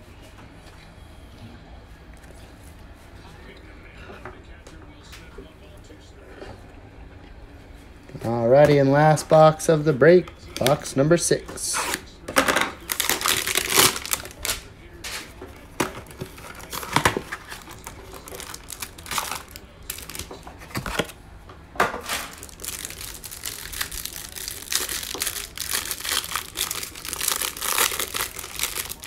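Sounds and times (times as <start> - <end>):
cellophane wrapper crinkling: 12.8 - 14.7, 15.8 - 21.1, 22.0 - 29.0.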